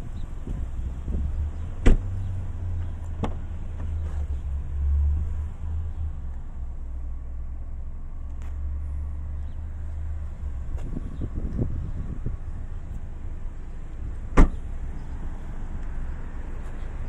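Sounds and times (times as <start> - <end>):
wind rumble on microphone: 0.0 - 5.2, 9.4 - 13.2
car door latch clicking: 14.4 - 14.6.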